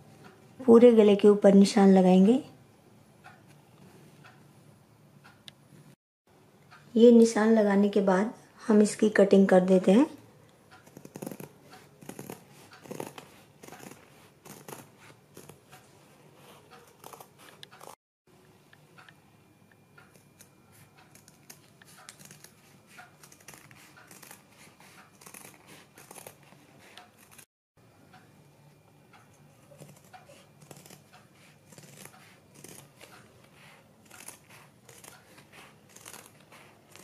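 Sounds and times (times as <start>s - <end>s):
scissors snipping paper: 10.8s - 15.8s, 16.4s - 18.0s, 20.1s - 27.5s, 29.6s - 37.0s.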